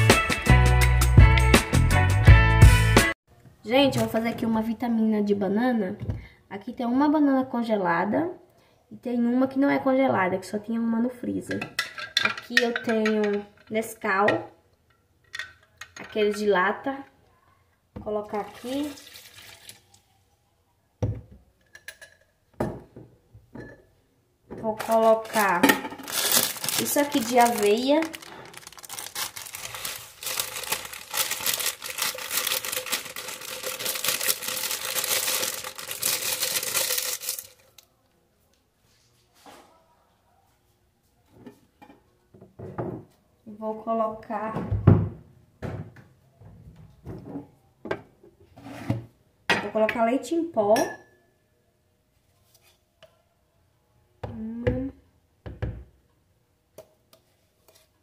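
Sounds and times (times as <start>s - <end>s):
plastic bag crinkling: 24.8s - 37.8s.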